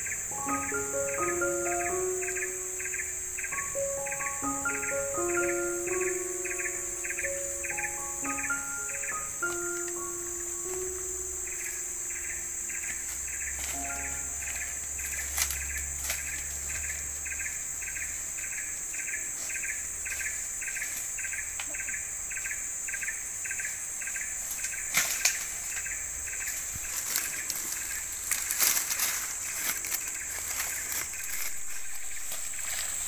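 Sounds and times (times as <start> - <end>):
insect high-pitched drone: 0.0 - 33.0
insect pulsing chirps: 0.0 - 33.0.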